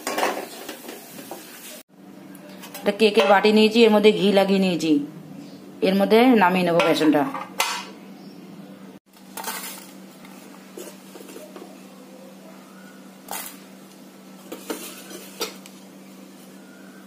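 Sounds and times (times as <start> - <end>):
metal spatula scraping pan: 14.5 - 15.6.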